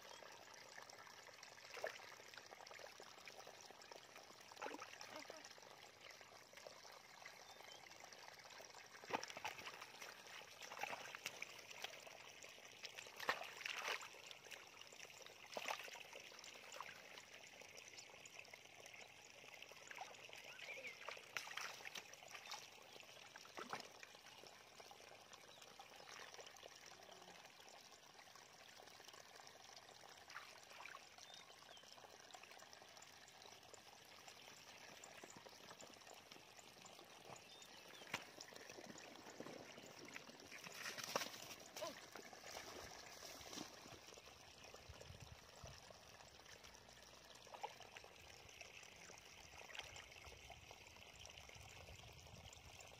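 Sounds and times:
small splashes: 8.8 - 14.8, 15.4 - 17.0, 19.9 - 24.2, 30.2 - 31.4, 37.2 - 44.2
sloshing in muddy water: 9.0 - 11.8, 13.0 - 14.5, 20.8 - 22.7, 38.0 - 44.1.

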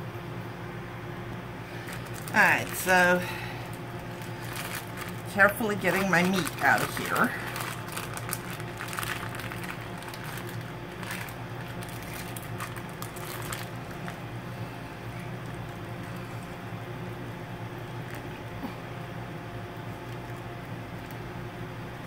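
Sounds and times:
steady low hum: 0.0 - 22.0
plastic bag crinkling: 1.7 - 16.6.

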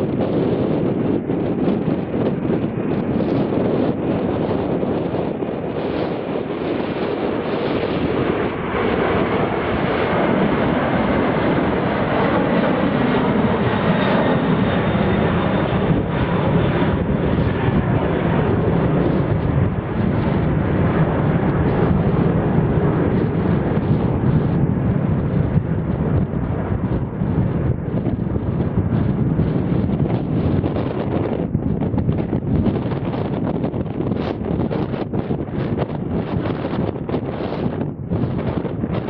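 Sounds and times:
jet airliner passing: 0.0 - 39.0.

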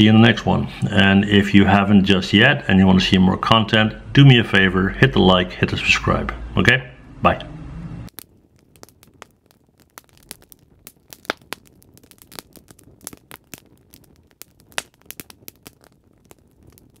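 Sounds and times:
wood fire crackling: 7.9 - 17.0.

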